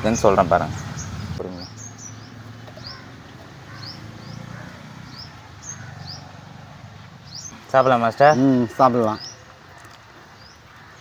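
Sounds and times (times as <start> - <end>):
small bird chirping: 0.7 - 7.6.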